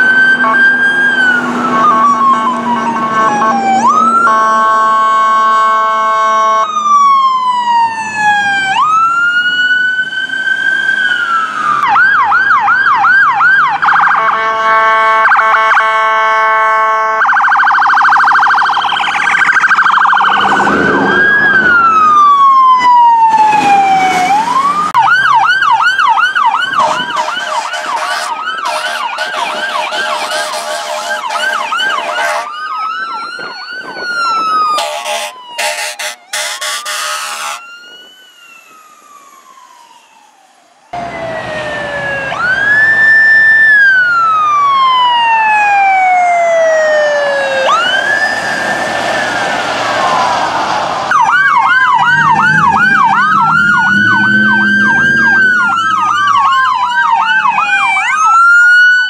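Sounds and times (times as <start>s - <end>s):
emergency sirens wailing and yelping: 0.0s - 59.0s
horn blasts: 1.6s - 6.7s, 14.1s - 17.2s, 26.7s - 32.6s, 34.8s - 37.7s.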